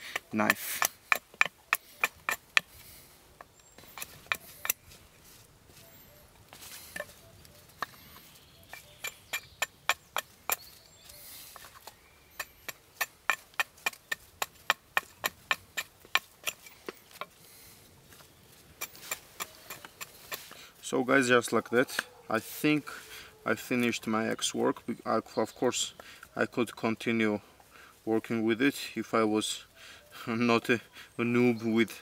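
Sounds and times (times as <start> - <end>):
axe chopping wood: 0.1 - 2.7, 11.6 - 17.3.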